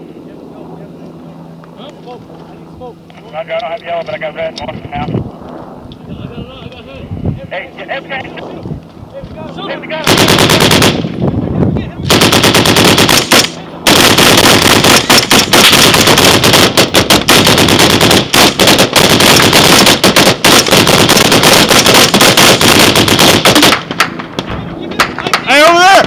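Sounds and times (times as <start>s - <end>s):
machine gun firing: 10.0s - 11.1s, 12.1s - 24.2s.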